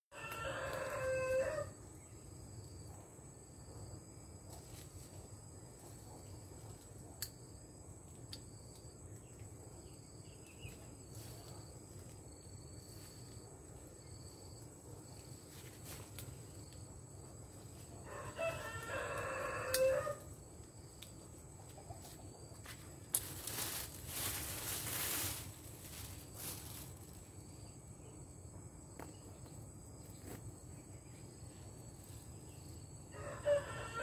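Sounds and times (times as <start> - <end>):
rooster crowing: 0.1 - 1.8, 18.0 - 20.3, 33.1 - 34.0
high insect trill: 0.1 - 34.0.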